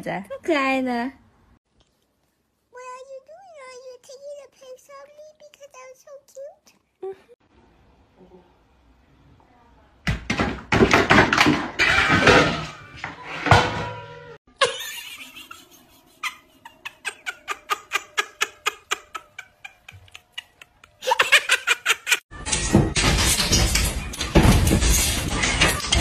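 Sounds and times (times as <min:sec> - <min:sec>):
cats hissing and crying: 0:14.8 - 0:21.3.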